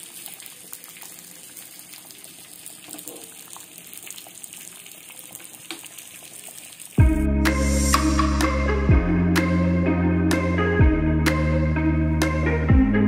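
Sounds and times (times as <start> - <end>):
fish sizzling in oil: 0.0 - 7.0
loud background music: 7.0 - 13.0.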